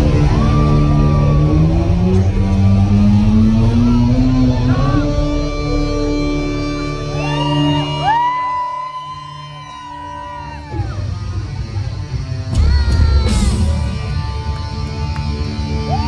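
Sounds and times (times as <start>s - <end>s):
crowd shouting: 0.0s - 6.1s, 6.9s - 11.3s
rock band playing live: 0.0s - 8.7s, 9.8s - 16.0s.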